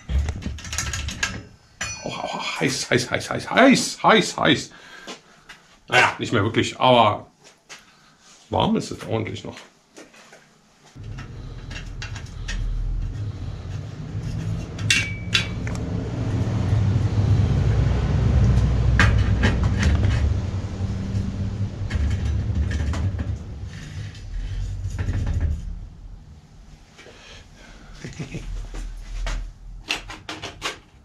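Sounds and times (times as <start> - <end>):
metal clinks: 1.3 - 2.3
steady low hum: 10.9 - 30.0.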